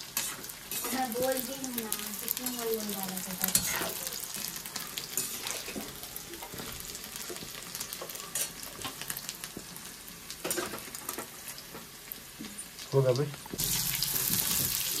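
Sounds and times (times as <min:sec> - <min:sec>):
cubes frying in hot oil: 0:00.0 - 0:15.0
steel spoon scraping pan: 0:03.4 - 0:04.0.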